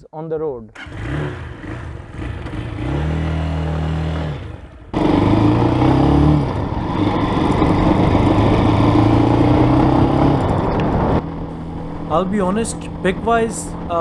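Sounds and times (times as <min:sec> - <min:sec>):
motorcycle engine revving: 0:00.8 - 0:14.0
wind noise: 0:06.5 - 0:14.0.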